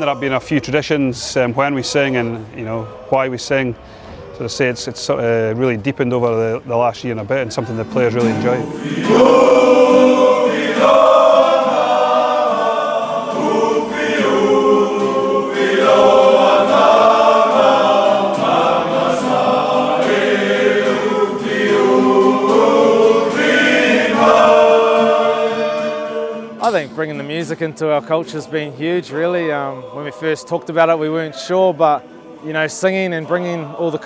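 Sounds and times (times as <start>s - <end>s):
men singing in chorus: 8.6s - 27.0s, 28.3s - 34.0s.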